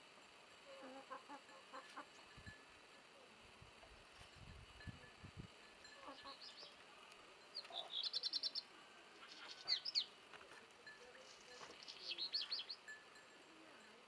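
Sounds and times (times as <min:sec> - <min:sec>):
songbird singing high notes: 0:07.6 - 0:08.7, 0:11.8 - 0:12.9.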